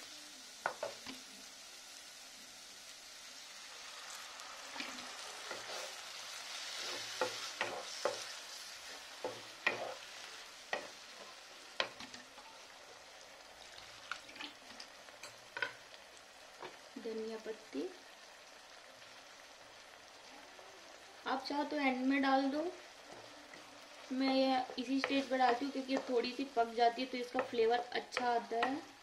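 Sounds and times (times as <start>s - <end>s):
masala sizzling in a wok: 0.0s - 29.0s.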